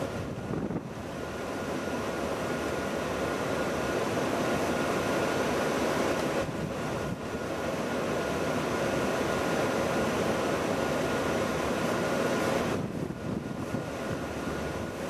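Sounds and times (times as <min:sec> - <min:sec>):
rushing outdoor background noise: 0:00.0 - 0:15.0.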